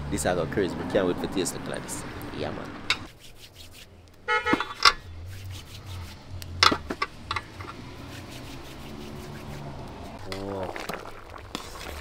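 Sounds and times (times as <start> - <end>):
metal spoon scraping a pot: 4.4 - 9.4.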